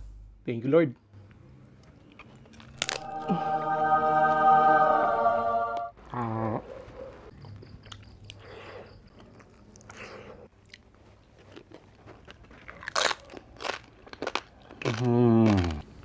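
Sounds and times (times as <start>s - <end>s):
crunching and chewing: 1.7s - 3.0s, 6.8s - 16.0s.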